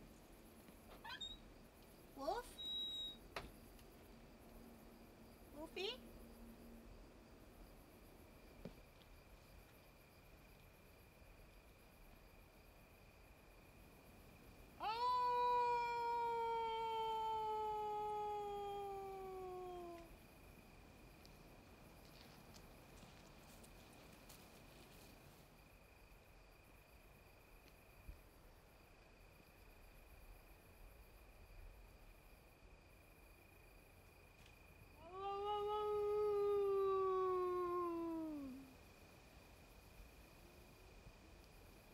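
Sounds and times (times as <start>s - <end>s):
faint steady high tone: 2.2s - 3.3s
wolf howling: 14.8s - 20.1s, 35.1s - 38.7s.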